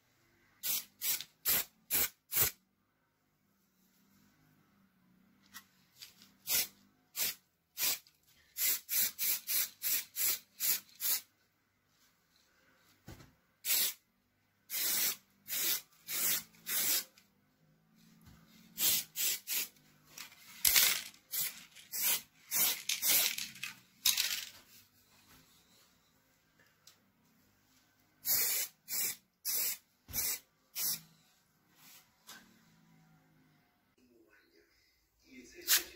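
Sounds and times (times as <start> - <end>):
spray paint hissing: 0.6 - 2.6, 6.4 - 8.0, 8.6 - 11.3, 13.6 - 14.0, 14.7 - 17.1, 18.8 - 19.7, 20.7 - 23.4, 28.2 - 31.0.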